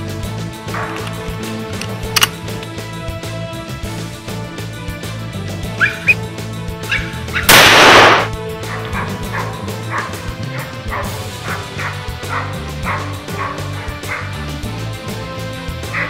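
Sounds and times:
background music: 0.0 - 16.0
hunting dog barking: 0.7 - 1.1, 5.8 - 6.2, 6.8 - 7.6, 8.6 - 14.5, 15.8 - 16.0.

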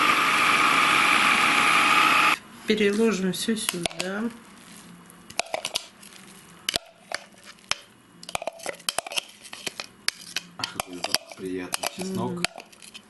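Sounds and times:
metal spoon scraping bowls: 5.3 - 13.0.

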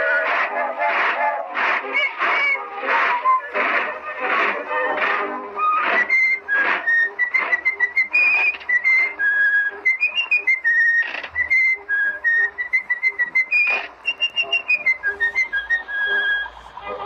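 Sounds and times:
person whistling a lively tune: 0.0 - 16.6.

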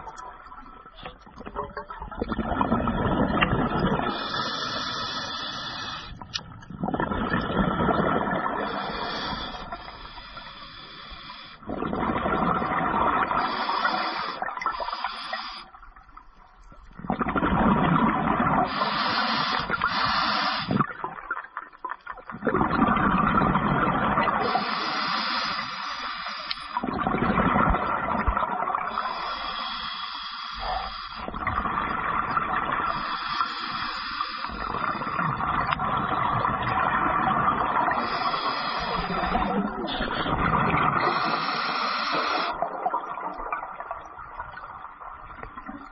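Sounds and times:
exhaled bubbles streaming: 0.0 - 25.7, 26.7 - 29.8, 30.6 - 45.9
diver inhaling through regulator: 4.0 - 6.3, 8.6 - 11.8, 13.2 - 15.8, 18.6 - 20.9, 24.4 - 26.8, 28.9 - 31.4, 32.8 - 35.4, 37.6 - 42.7.

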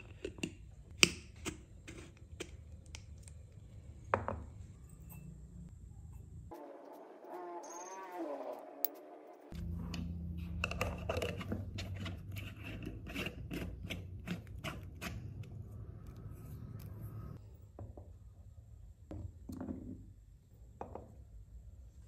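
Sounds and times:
jar on wooden tabletop: 8.9 - 16.9.

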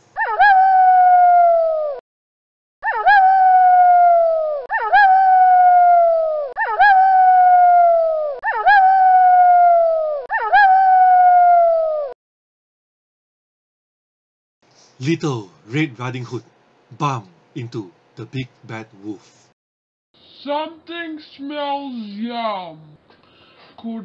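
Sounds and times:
wolf howling: 0.1 - 2.0, 2.8 - 12.2.

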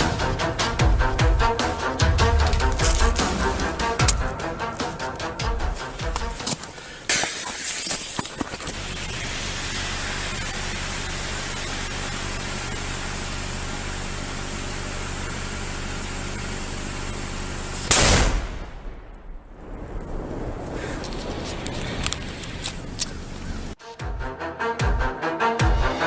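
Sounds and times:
loud explosion: 17.9 - 21.4.

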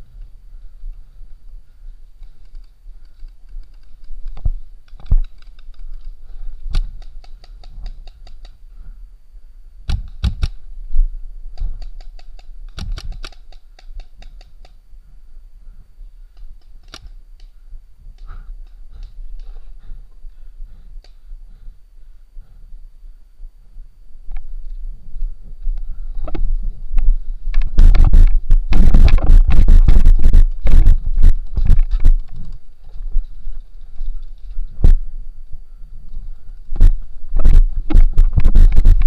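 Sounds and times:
paintball markers firing: 11.6 - 14.8.

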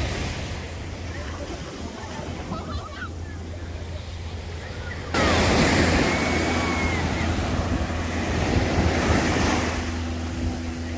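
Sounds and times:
ocean surf breaking: 0.0 - 10.9
wind buffeting microphone: 4.5 - 10.9.

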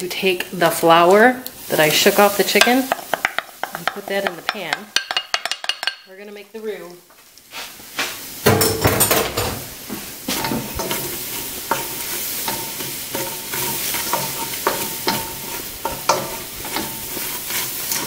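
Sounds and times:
flour sizzling in hot fat: 0.0 - 8.8, 9.4 - 18.0
wooden spoon scraping a pot: 1.7 - 4.9, 10.2 - 18.0.

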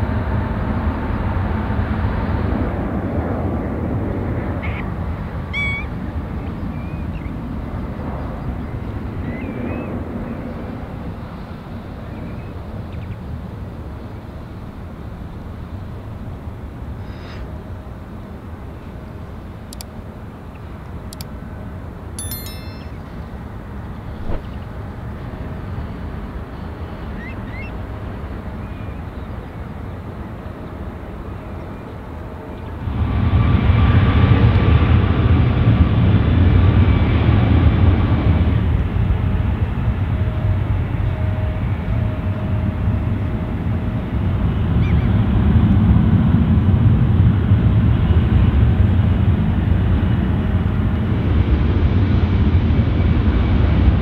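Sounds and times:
jet engines low rumble: 0.0 - 22.2, 22.9 - 54.0
whistled bird calls: 5.5 - 5.9, 27.2 - 27.8.

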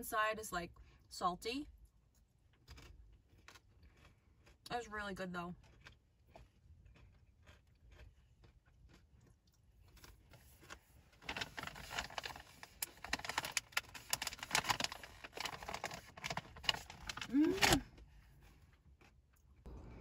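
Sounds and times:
chewing crunchy crackers: 1.7 - 4.9, 5.5 - 19.7
food packaging crinkling: 9.9 - 17.9.

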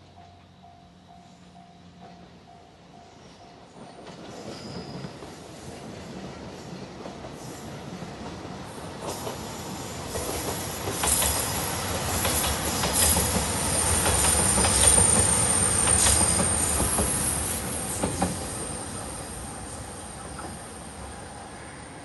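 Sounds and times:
train wheel clatter: 9.0 - 18.8.

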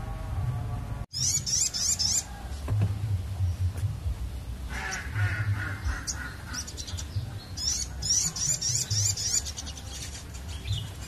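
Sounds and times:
low background rumble: 0.0 - 11.0
bird warbling and chirping: 1.1 - 2.7, 4.6 - 11.0.

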